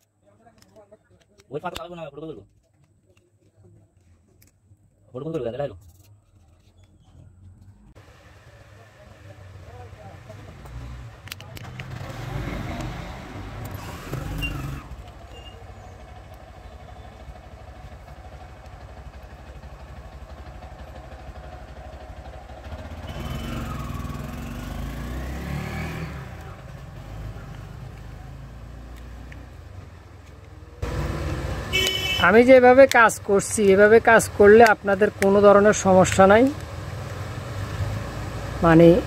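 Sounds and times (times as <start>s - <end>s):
traffic rumble: 0.0s - 39.0s
vehicle engine accelerating past: 8.5s - 16.3s, 22.4s - 30.0s, 30.8s - 31.8s, 36.8s - 39.0s
plastic parts clicking: 11.2s - 11.9s.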